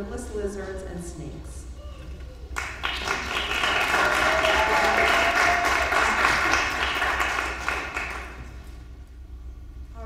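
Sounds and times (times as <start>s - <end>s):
audience applauding: 2.5s - 8.7s.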